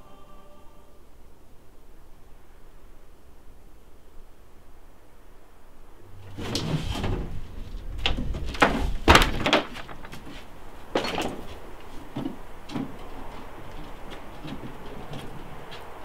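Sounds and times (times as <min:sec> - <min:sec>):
prop knocking and scraping: 0:06.2 - 0:16.0.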